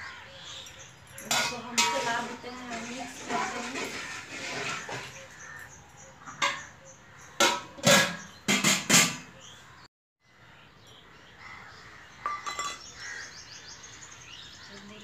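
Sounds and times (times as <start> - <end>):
metal pots clanking together: 1.2 - 5.7, 6.3 - 6.8, 7.4 - 9.4, 12.2 - 12.9.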